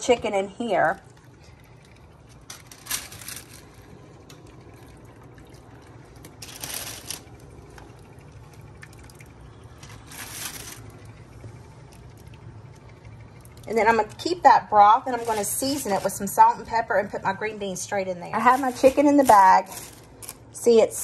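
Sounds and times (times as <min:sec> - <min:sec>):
broth dripping and splashing: 0:04.2 - 0:13.7.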